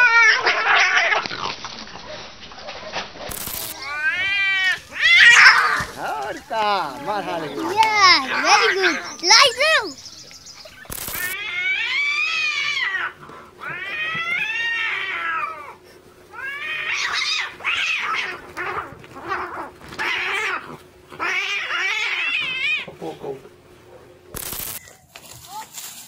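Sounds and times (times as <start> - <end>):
cats yowling: 0.0 - 1.3, 3.5 - 10.0, 10.6 - 23.5.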